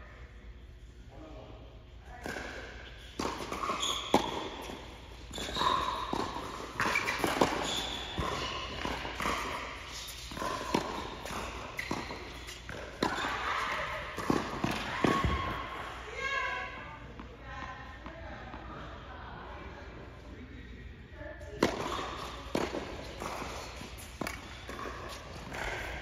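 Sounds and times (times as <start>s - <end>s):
ball bouncing on hard court: 2.1s - 15.8s, 21.6s - 26.0s
racket striking tennis ball: 2.2s - 15.4s, 21.6s - 26.0s.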